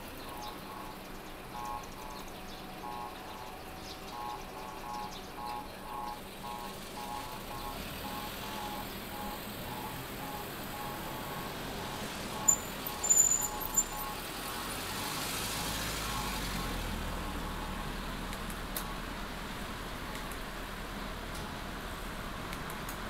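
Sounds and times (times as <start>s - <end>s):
city street traffic: 0.0s - 23.0s
vehicle passing: 7.7s - 18.3s
short high-pitched squeaks: 12.4s - 14.2s.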